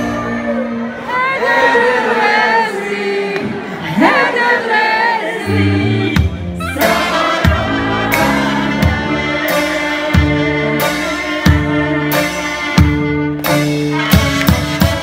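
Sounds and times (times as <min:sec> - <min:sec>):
women singing together: 0:01.0 - 0:10.7
brass band music: 0:04.9 - 0:15.0
tuba bass line: 0:05.6 - 0:15.0.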